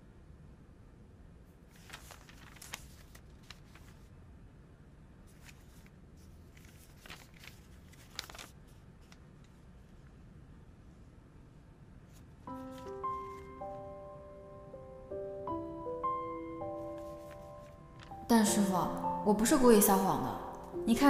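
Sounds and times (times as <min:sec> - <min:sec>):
faint low room hum: 0:00.0 - 0:21.0
paper pages rustling: 0:01.7 - 0:04.1, 0:05.3 - 0:10.1, 0:12.1 - 0:13.8, 0:16.8 - 0:18.6.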